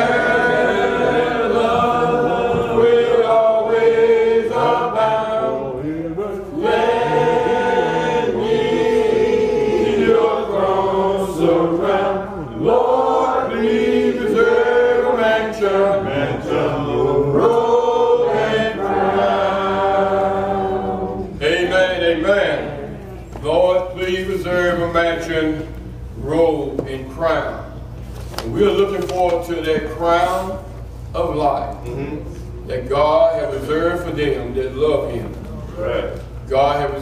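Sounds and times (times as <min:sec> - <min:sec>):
congregation singing a hymn: 0:00.0 - 0:25.6.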